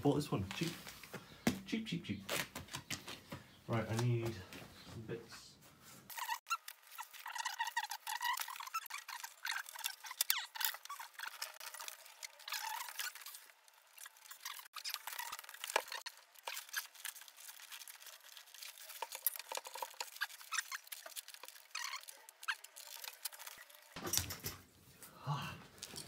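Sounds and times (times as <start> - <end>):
parts rummaged by hand: 6.1 - 24.7.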